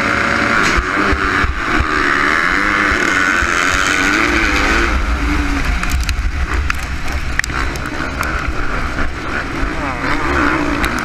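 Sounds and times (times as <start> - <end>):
motocross engines at full throttle: 0.0 - 11.0
wind rumble on microphone: 0.0 - 11.0
sharp ticks: 5.6 - 8.5.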